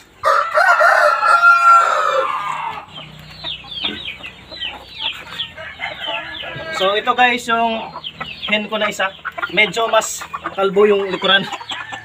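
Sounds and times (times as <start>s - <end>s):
chickens clucking and chirping: 0.0s - 12.0s
rooster crowing: 0.2s - 3.0s, 5.3s - 7.0s.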